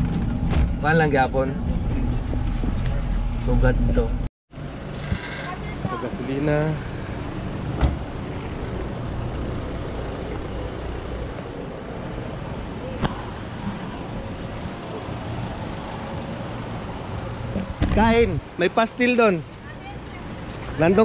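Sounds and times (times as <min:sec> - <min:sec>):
truck engine rumble: 0:00.0 - 0:15.9
road noise: 0:00.0 - 0:21.0.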